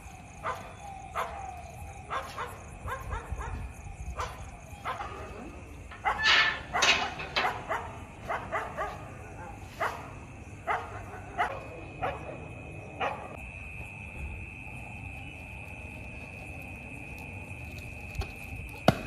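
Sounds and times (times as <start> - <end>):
dog barking: 0.4 - 1.5, 2.1 - 13.4.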